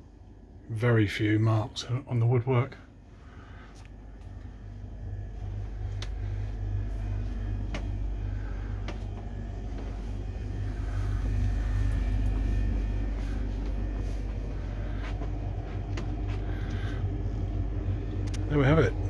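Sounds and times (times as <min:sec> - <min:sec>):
diesel engines rumbling: 0:05.3 - 0:19.0.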